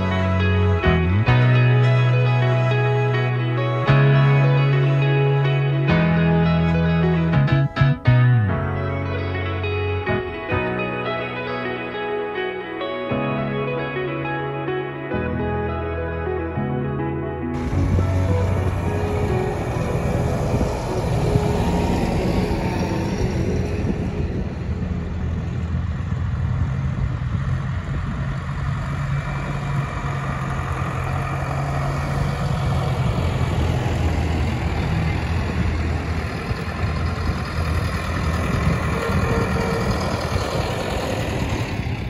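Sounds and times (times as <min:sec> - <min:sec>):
tractor diesel engines driving past: 0:00.0 - 0:08.0, 0:17.6 - 0:42.0.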